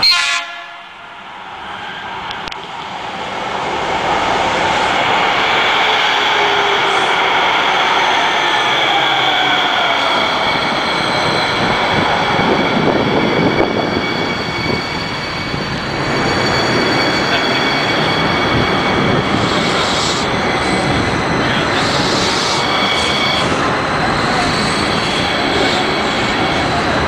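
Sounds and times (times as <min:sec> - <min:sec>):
wheels rumbling on rail: 0:01.9 - 0:27.0
thin high whine: 0:06.0 - 0:26.9.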